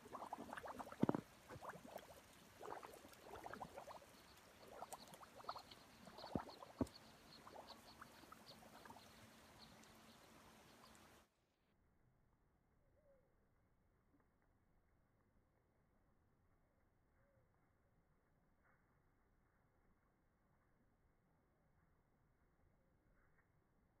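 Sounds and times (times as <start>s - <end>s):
water dripping and splashing: 0.0s - 11.2s
water trickling and gurgling: 0.0s - 11.3s.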